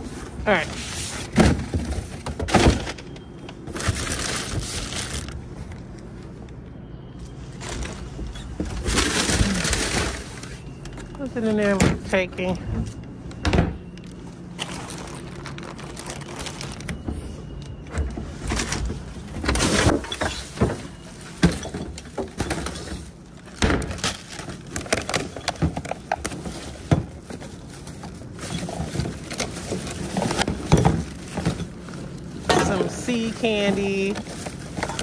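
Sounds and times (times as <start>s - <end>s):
plastic bins and lids clattering: 0.0s - 5.7s, 7.2s - 35.0s
plastic bags crinkling: 2.8s - 6.0s, 7.6s - 11.4s, 14.0s - 17.3s, 18.6s - 35.0s.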